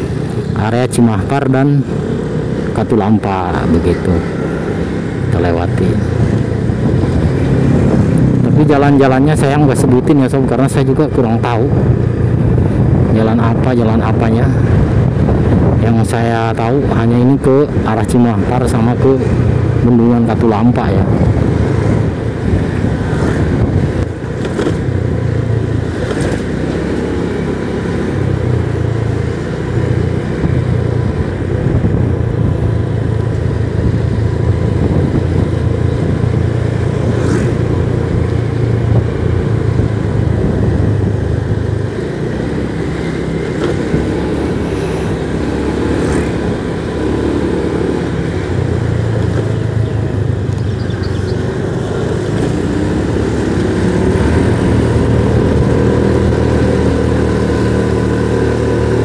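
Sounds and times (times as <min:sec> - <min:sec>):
motorcycle engine cruising: 0:00.0 - 0:59.0
road and wind noise: 0:00.0 - 0:59.0.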